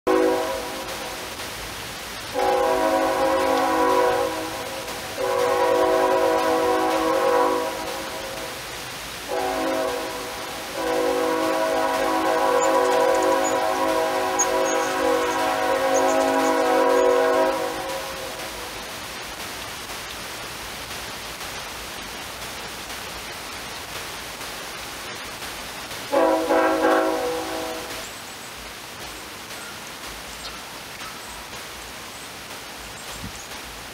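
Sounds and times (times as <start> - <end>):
horn chord blasts: 0.1 - 1.0, 2.4 - 8.6, 9.3 - 18.4, 26.1 - 28.0
steady hiss: 0.1 - 33.9.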